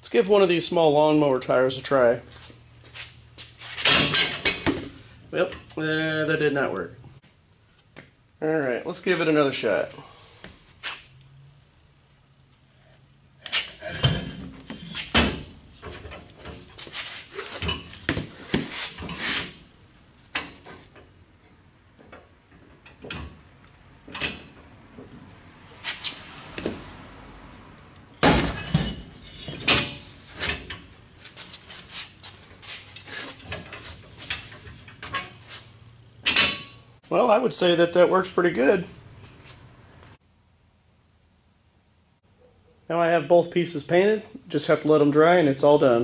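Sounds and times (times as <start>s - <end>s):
metal clunks and knocks: 3.8s - 5.7s, 28.2s - 30.9s.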